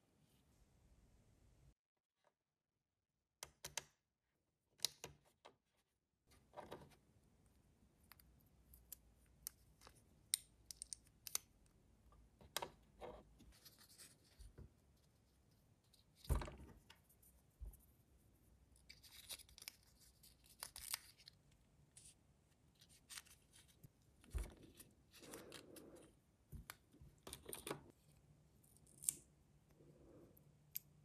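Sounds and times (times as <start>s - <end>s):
small plastic pieces clicking: 8.8s - 11.5s.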